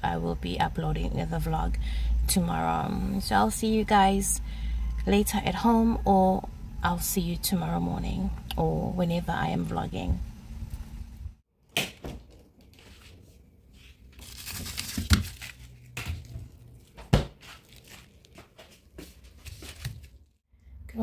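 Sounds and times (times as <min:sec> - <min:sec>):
plastic wrapping crinkling: 0:14.1 - 0:18.5.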